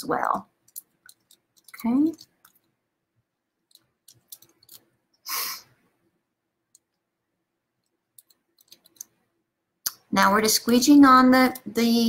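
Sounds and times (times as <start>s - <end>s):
small clicks and taps: 0.6s - 2.8s, 3.6s - 4.9s, 7.8s - 9.2s.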